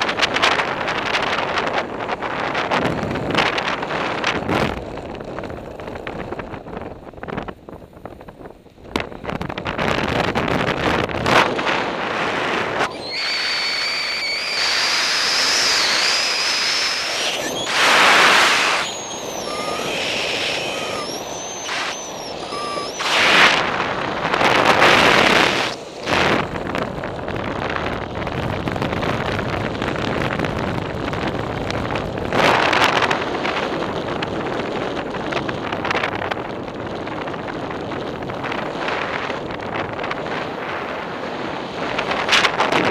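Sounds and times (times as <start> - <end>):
wind noise on microphone: 0.0 - 42.9
thin high wavering tone: 12.8 - 23.6.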